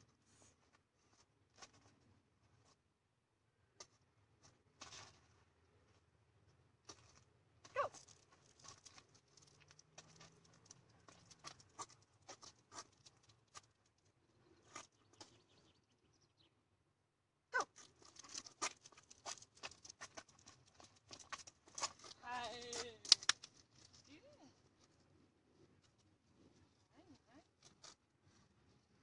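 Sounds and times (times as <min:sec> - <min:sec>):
light scuffs and ticks: 0:06.8 - 0:15.5, 0:17.6 - 0:25.1
running feet and paws on asphalt: 0:06.9 - 0:15.6.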